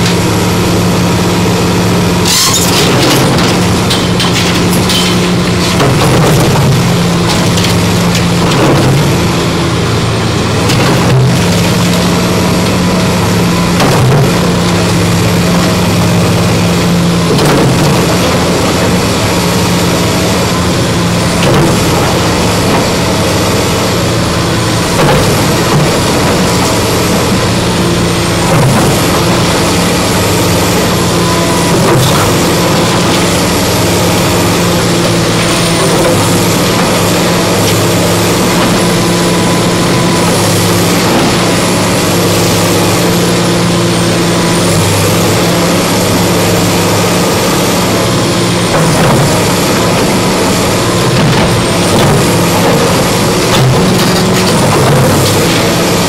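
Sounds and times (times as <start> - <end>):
diesel engine running: 0.0 - 56.0
hydraulic whine: 0.0 - 56.0.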